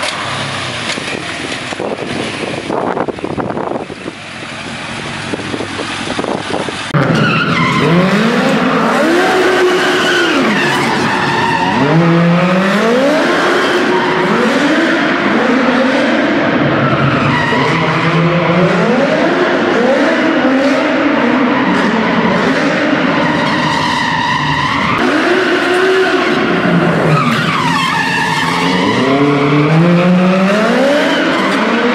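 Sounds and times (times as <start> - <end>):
tyres squealing: 27.0 - 29.9.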